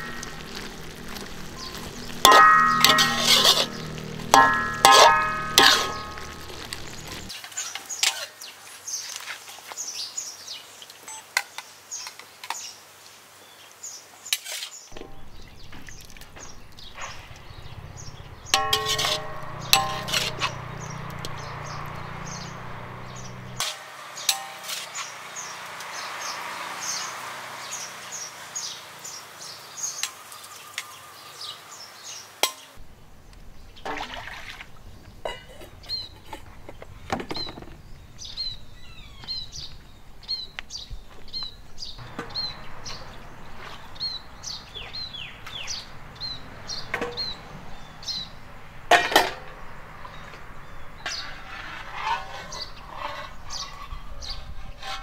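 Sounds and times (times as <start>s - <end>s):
birds chirping: 0.0s - 9.1s, 14.8s - 33.9s, 34.8s - 55.0s
clinks and knocks: 2.2s - 7.3s, 17.1s - 21.9s, 48.9s - 49.6s.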